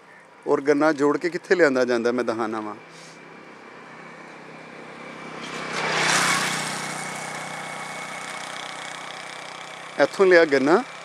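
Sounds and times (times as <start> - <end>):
vehicle passing by: 2.4 - 11.0
engine running: 2.6 - 11.0.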